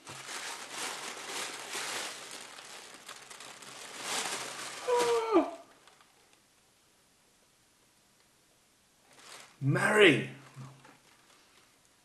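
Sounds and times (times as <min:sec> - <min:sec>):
tissue paper rustling: 0:00.0 - 0:06.3, 0:09.1 - 0:09.7, 0:10.5 - 0:11.8
man's short exclamation: 0:04.8 - 0:05.7.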